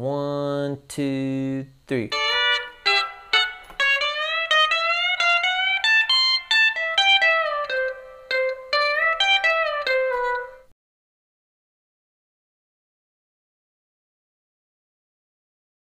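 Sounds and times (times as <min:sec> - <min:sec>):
pedal steel guitar: 0:02.1 - 0:10.7.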